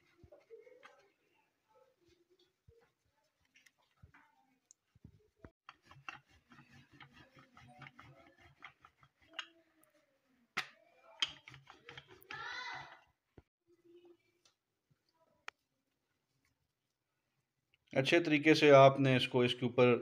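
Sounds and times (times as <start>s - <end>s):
rolling pin rolling dough: 5.6s - 9.8s, 10.6s - 13.1s.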